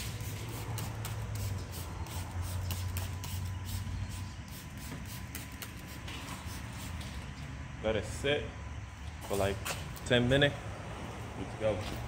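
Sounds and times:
spray bottle squirting: 0.0 - 7.1
steady low hum: 0.0 - 12.0.

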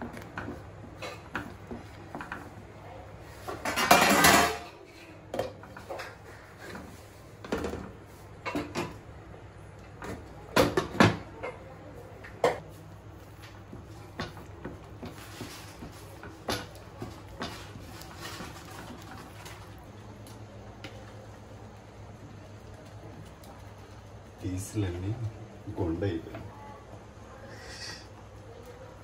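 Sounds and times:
cookware knocks and clinks: 3.6 - 4.7
wooden spatula scraping a pan: 14.7 - 19.7.

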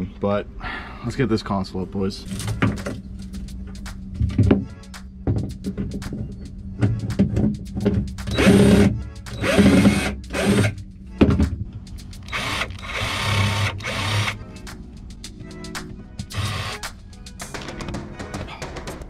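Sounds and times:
background music with steady beat: 0.0 - 19.0
cordless drill running: 8.4 - 10.8, 12.2 - 14.4, 16.3 - 16.8.

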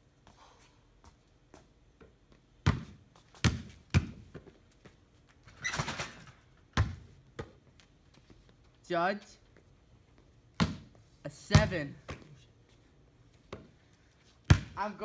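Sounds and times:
basketball bouncing on stone: 2.0 - 4.6, 6.8 - 7.6, 10.6 - 10.9, 11.5 - 12.2, 14.5 - 14.8
basketball hoop rattling: 5.4 - 7.0.

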